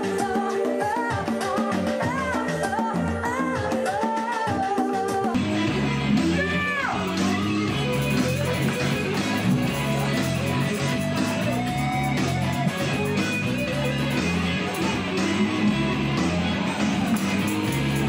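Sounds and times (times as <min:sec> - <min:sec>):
electric guitar: 0:00.0 - 0:18.0
rhythmic bass line: 0:04.6 - 0:18.0.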